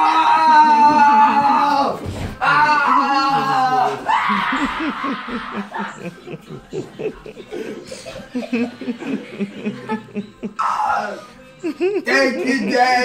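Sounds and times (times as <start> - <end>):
noisy outburst: 0.0 - 5.9
people laughing: 0.2 - 13.0.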